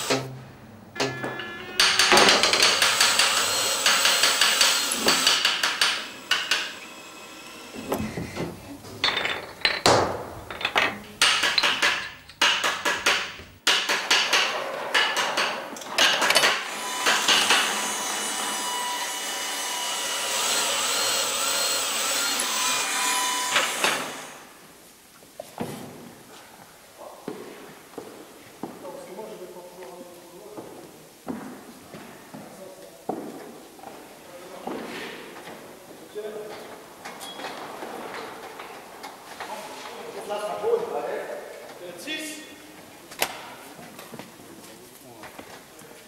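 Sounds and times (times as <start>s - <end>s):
hand tools tapping and scraping metal: 0.0s - 17.7s
sustained held tones: 0.8s - 2.8s.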